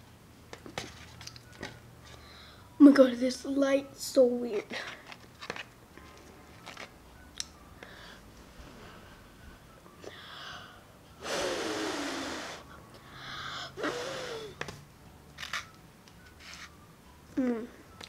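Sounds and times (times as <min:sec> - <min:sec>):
child gasping breathily: 0:07.8 - 0:08.2, 0:10.1 - 0:14.6.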